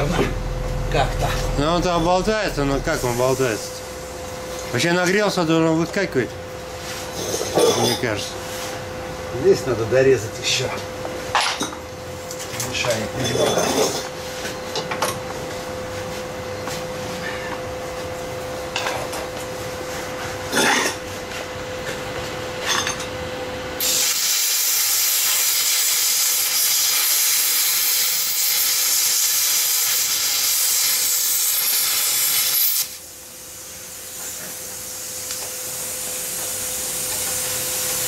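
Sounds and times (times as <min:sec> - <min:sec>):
plasma cutter hissing: 0:00.0 - 0:04.2, 0:23.8 - 0:38.0.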